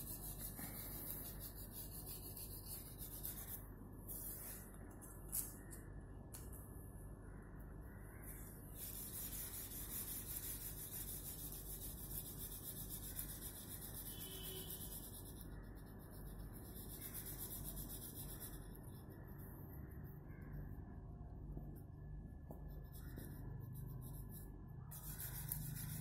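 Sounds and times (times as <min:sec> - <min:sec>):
crayon rubbing on paper: 0:00.0 - 0:04.6, 0:08.8 - 0:19.1, 0:22.6 - 0:26.0.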